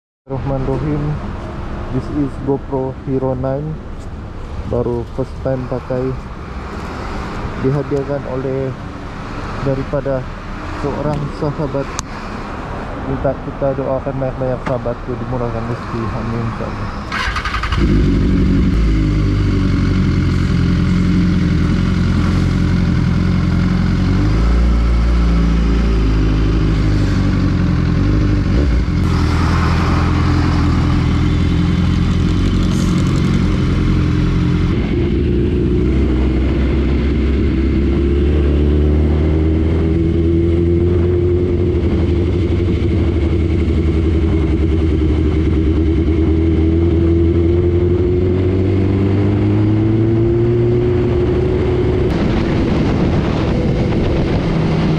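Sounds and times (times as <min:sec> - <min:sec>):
motorcycle engine running: 0:17.1 - 0:38.7, 0:39.9 - 0:50.6.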